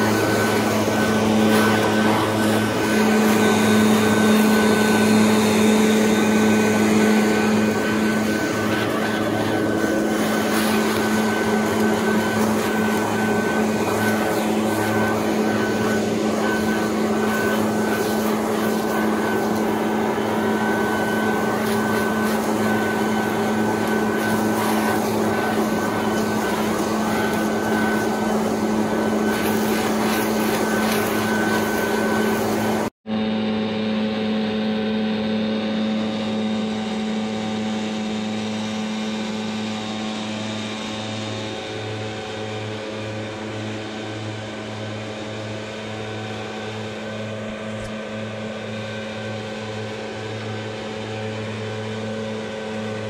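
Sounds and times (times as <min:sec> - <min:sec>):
leaf blower running: 0:00.0 - 0:53.0.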